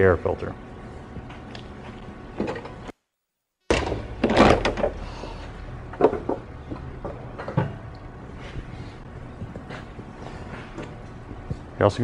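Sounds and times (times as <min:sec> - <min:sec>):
lawn mower knocks and clunks: 0:03.7 - 0:05.0.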